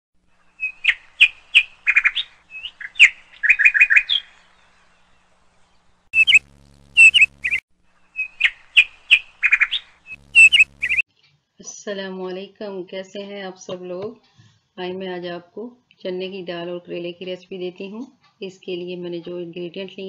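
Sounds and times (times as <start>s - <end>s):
songbird chirping: 0.5s - 11.0s
faint low hum: 4.6s - 8.1s.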